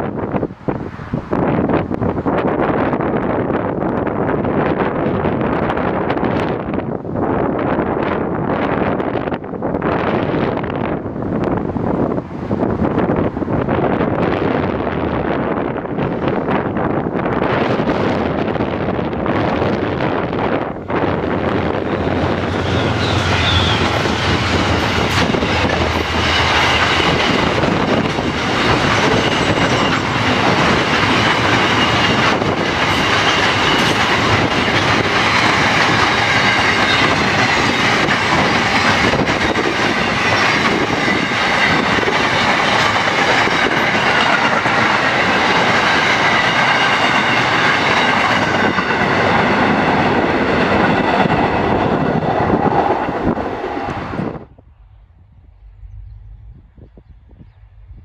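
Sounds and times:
train wheels rumbling on rails: 0:00.0 - 0:58.0
high wheel squeal: 0:22.0 - 0:44.3.

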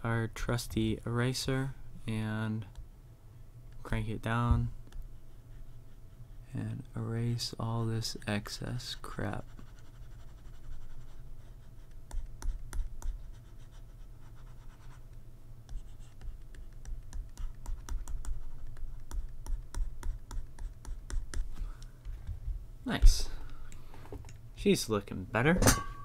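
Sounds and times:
stylus clicking and scratching on tablet: 0:09.0 - 0:21.6.

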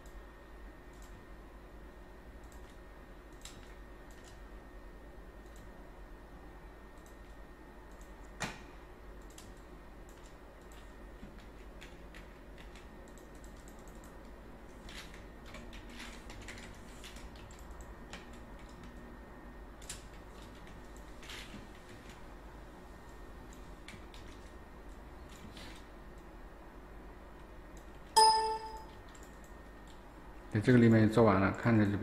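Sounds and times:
faint steady hum: 0:00.0 - 0:32.0
keyboard and mouse clicking: 0:09.2 - 0:10.9, 0:11.8 - 0:14.2.

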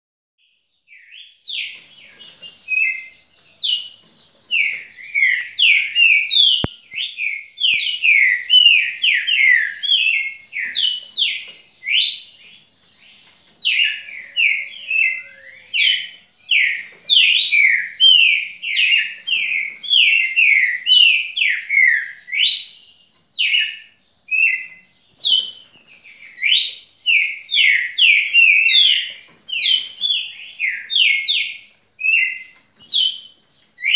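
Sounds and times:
songbird singing high notes: 0:13.7 - 0:22.7.

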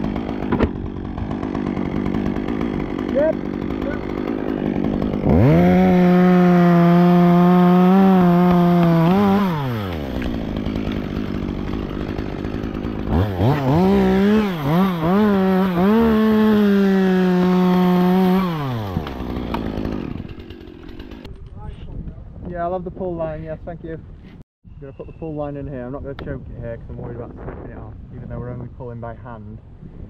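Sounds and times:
chainsaw cutting wood: 0:00.0 - 0:21.3.

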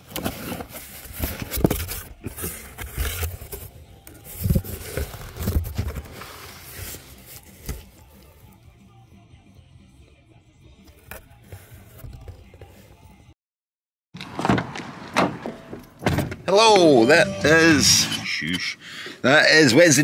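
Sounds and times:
cardboard box scraping: 0:00.0 - 0:07.9
packing paper rustling: 0:00.0 - 0:08.3.

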